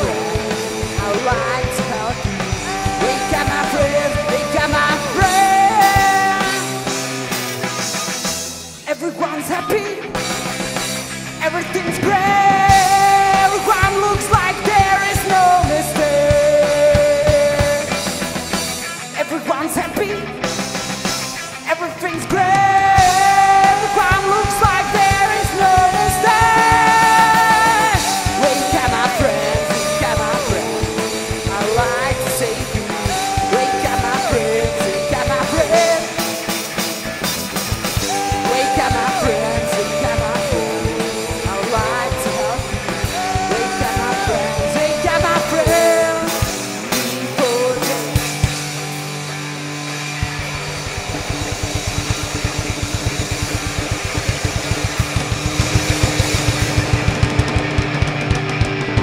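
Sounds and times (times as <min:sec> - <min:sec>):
person singing long notes: 0:00.0 - 0:06.9, 0:22.3 - 0:36.4, 0:38.0 - 0:48.2
live rock band playing: 0:00.0 - 0:59.0.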